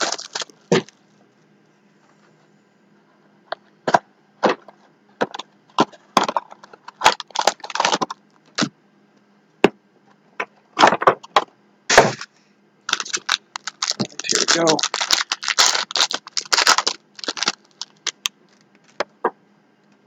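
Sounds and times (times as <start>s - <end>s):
cardboard box being torn open: 0.0s - 0.9s.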